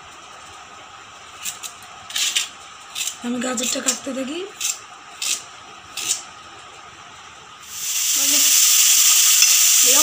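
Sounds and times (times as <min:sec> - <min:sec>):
frying in hot oil sizzling: 0:07.6 - 0:10.0.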